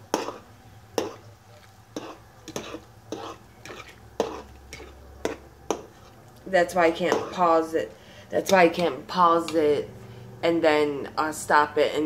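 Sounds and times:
utensil scraping a pot: 0.0 - 7.6.

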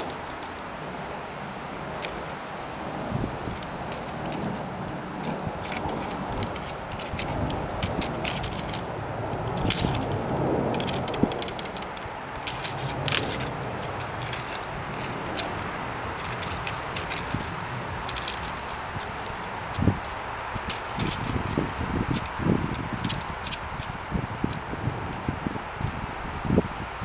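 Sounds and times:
pinwheel clicking and crackling: 5.2 - 24.6.

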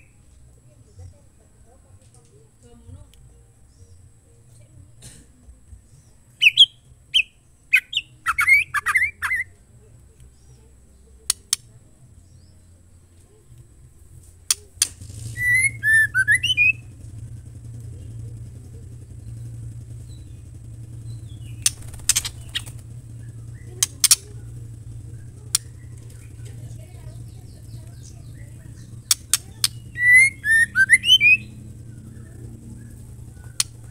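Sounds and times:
bird chirps and harsh calls: 5.9 - 9.6, 14.5 - 33.9
bird whistled notes: 6.4 - 9.5, 15.2 - 17.0, 27.2 - 33.9
sharp clicks: 11.2 - 11.8, 13.5 - 33.9.

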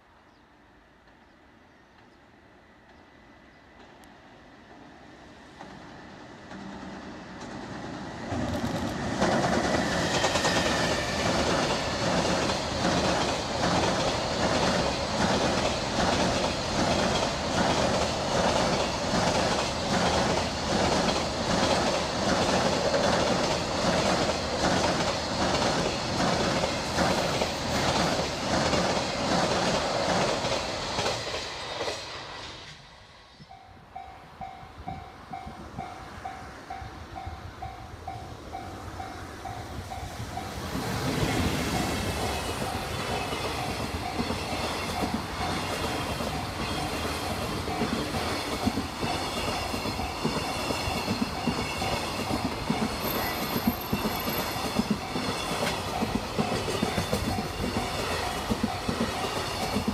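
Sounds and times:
freight train rumbling on bridge: 0.0 - 59.9
train wheels clacking on rail joints: 5.6 - 32.2, 39.4 - 59.9.

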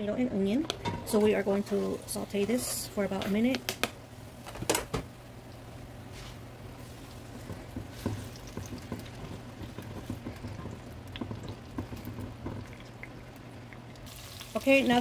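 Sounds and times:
low steady hum: 0.0 - 15.0
onion and tomato sizzling in oil: 0.8 - 4.5, 5.1 - 15.0
crackles and pops: 3.5 - 5.7.

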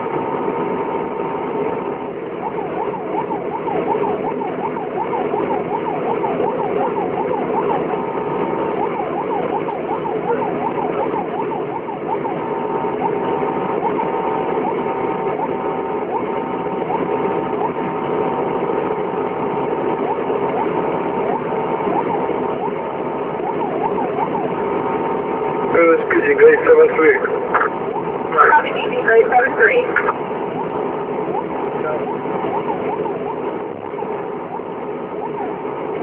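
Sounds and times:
heavy vehicle engine running: 0.0 - 36.0
electronic siren yelping: 1.2 - 36.0.

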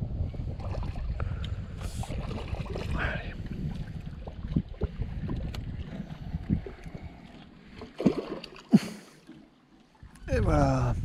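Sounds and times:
wind buffeting microphone: 0.0 - 8.4, 10.0 - 11.0
small water splashes: 0.5 - 10.3.

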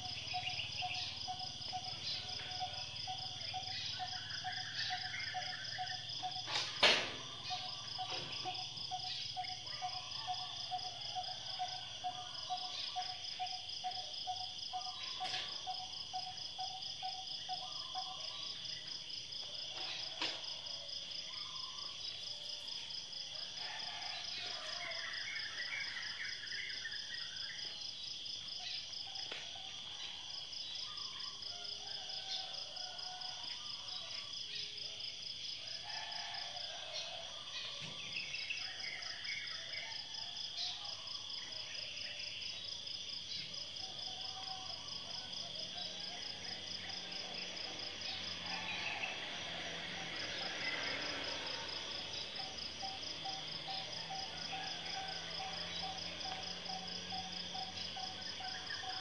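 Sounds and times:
insects trilling: 0.0 - 59.0.

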